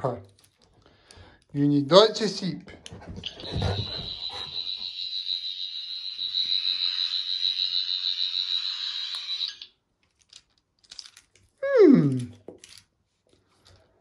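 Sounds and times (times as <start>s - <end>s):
toy warbling electronic tone: 3.2s - 9.7s.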